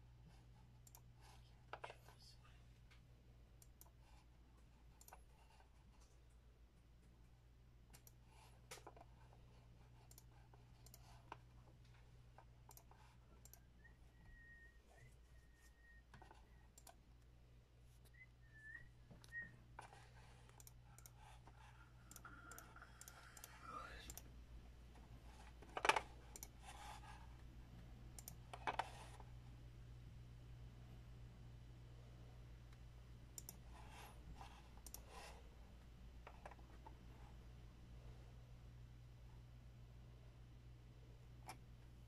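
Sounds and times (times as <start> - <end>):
faint electrical hum: 0.0 - 42.0
faint clicks: 0.8 - 1.1, 10.0 - 11.9, 12.6 - 13.6, 19.2 - 24.3, 26.3 - 26.9, 28.2 - 29.0, 32.7 - 33.8, 34.8 - 35.2.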